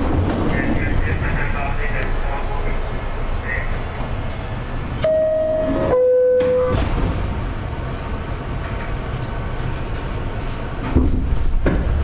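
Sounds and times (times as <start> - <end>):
train clank: 0.0 - 2.1, 5.0 - 7.4, 9.9 - 12.0
train car rumbling on track: 0.0 - 12.0.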